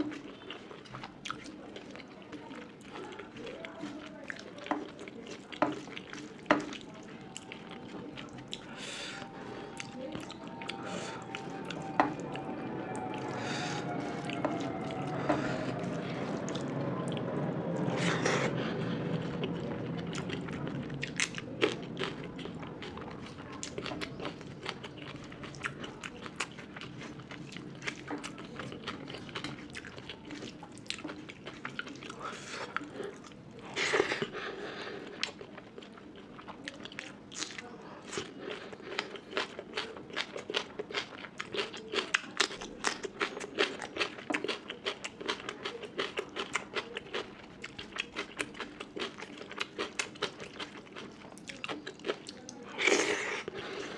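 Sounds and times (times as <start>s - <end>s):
person chewing food: 0.0s - 53.9s
falling background tone: 9.1s - 17.9s.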